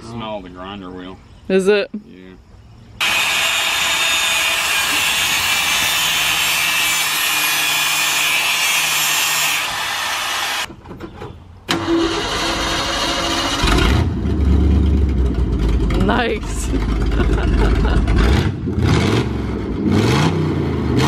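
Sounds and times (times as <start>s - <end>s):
angle grinder cutting metal: 3.0s - 10.7s
truck engine starting: 11.6s - 21.0s.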